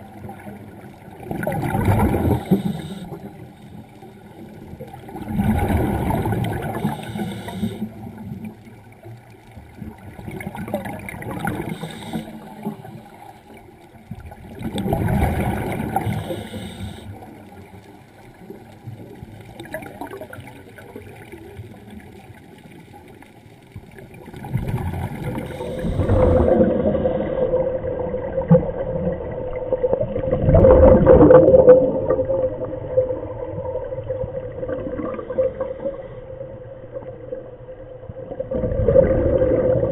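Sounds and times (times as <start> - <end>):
underwater regulator exhalation bubbles: 1.3 - 3.4, 5.1 - 7.9, 10.3 - 13.0, 14.6 - 17.0, 24.4 - 27.6
steady hum: 6.6 - 7.9, 16.0 - 17.1, 25.4 - 26.5.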